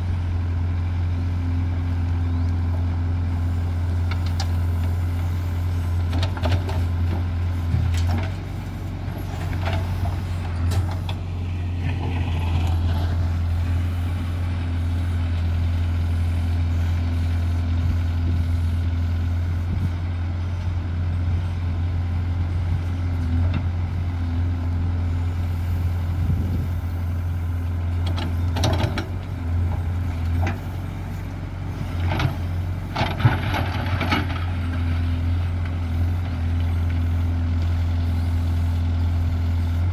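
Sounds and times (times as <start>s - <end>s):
diesel engine running under load: 0.0s - 39.9s.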